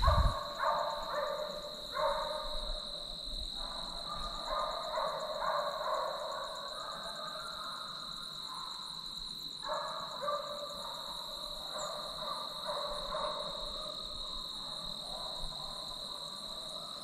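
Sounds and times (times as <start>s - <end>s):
hounds baying: 0.0s - 2.5s.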